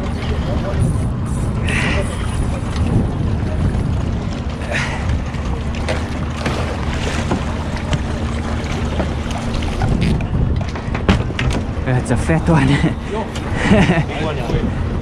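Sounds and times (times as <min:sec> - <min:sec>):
water sloshing against boat: 0:00.0 - 0:15.0
wind buffeting microphone: 0:00.0 - 0:15.0
fish splashing and knocking: 0:04.8 - 0:11.8.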